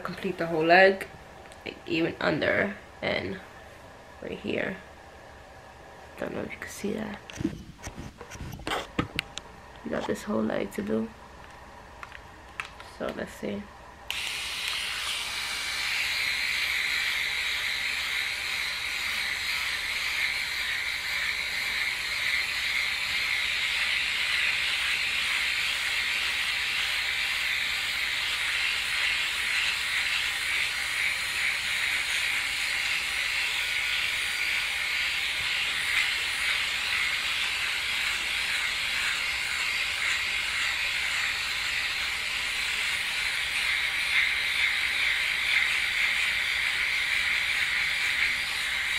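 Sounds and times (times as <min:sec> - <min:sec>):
electric shaver whirring: 0:14.1 - 0:48.9.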